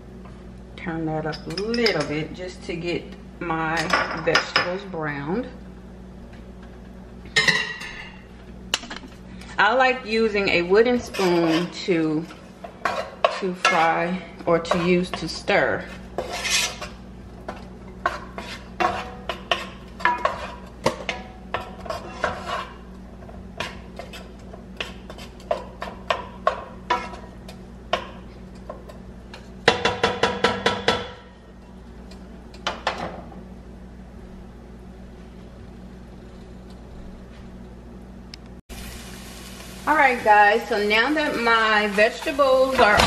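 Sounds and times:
wooden spoon scraping frying pan: 10.8s - 17.0s, 18.0s - 20.8s, 21.5s - 22.9s, 26.9s - 27.3s.

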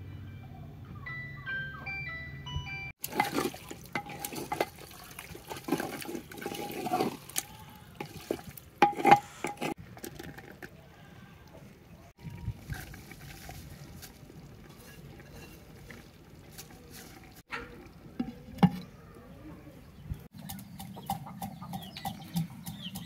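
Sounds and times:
wooden spoon stirring in clay pot: 3.0s - 10.8s, 12.3s - 18.9s, 20.3s - 23.0s.

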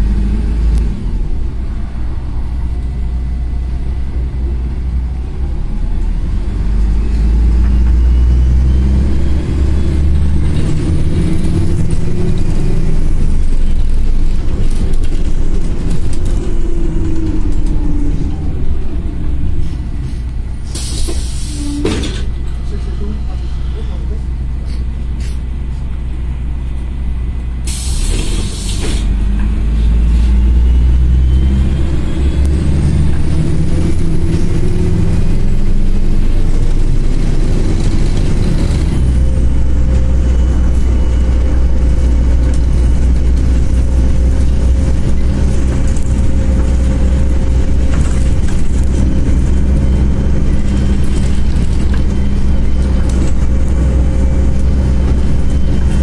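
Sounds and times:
bus engine rumbling: 0.0s - 56.0s
engine whine: 0.0s - 56.0s
air brake hiss: 19.6s - 22.0s, 24.6s - 25.5s, 27.7s - 29.1s.

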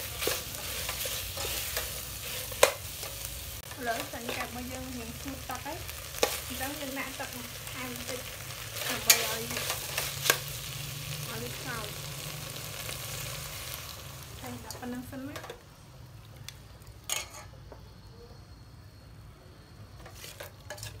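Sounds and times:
meat sizzling in a pot: 0.0s - 17.4s
metal ladle clinking on pot: 17.1s - 17.5s.

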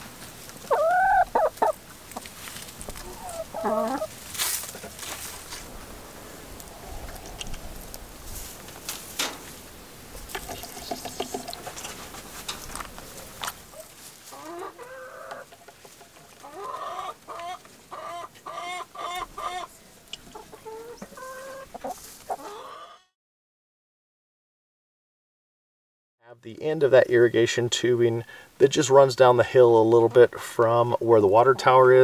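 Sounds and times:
hens clucking: 0.4s - 9.6s, 10.3s - 23.1s
beaks pecking plastic cups: 10.3s - 13.6s.

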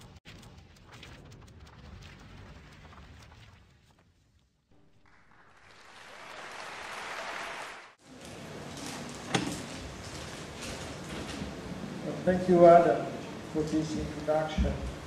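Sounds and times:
audience applauding: 4.8s - 8.0s.

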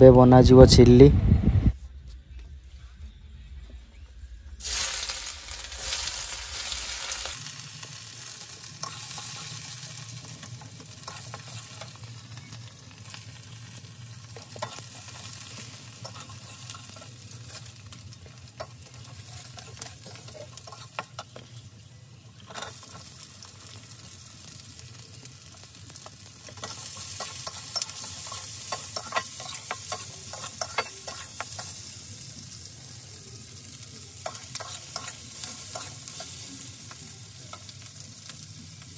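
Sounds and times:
metal spatula scraping wok: 4.6s - 12.5s, 14.2s - 21.5s, 22.4s - 23.1s, 26.5s - 31.8s, 34.2s - 36.5s
garlic sizzling in oil: 4.6s - 38.9s.

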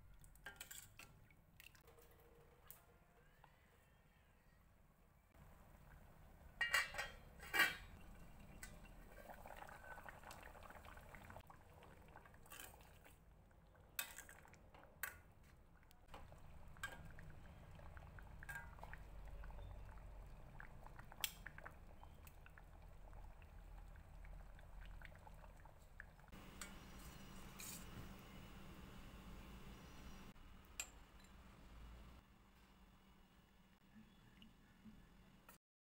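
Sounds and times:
curry simmering: 5.4s - 30.3s
ladle clinking against pan: 6.6s - 8.0s.

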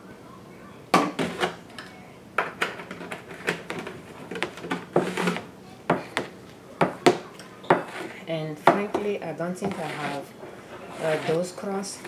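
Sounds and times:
spoon scraping a plastic bowl: 2.9s - 5.5s, 7.7s - 8.2s, 9.6s - 11.9s.

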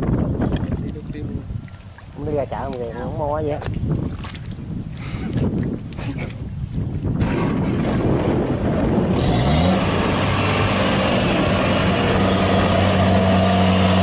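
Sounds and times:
diesel engine revving under load: 7.2s - 14.0s.

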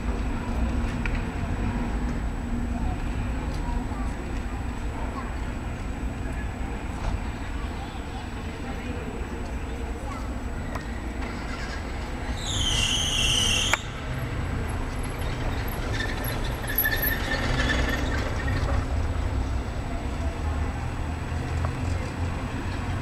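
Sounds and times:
wavering high-pitched squeal: 11.4s - 14.2s.

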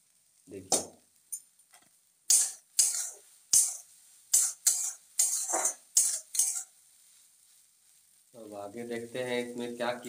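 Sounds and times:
metal spoon scraping pan: 2.3s - 6.7s.

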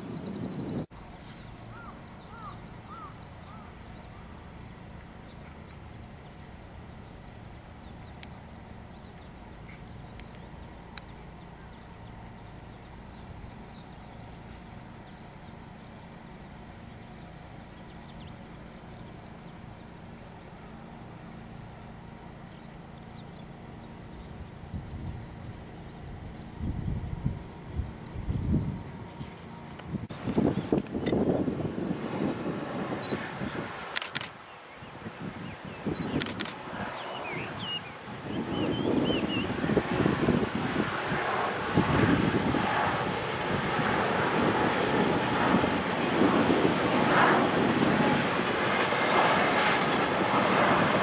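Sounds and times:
birds chirping: 0.0s - 40.0s
steady low rumble: 0.0s - 51.0s.

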